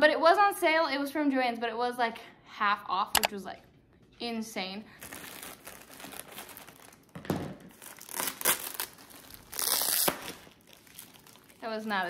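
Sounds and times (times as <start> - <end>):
plastic wrapping crinkling and ripping: 5.0 - 12.0.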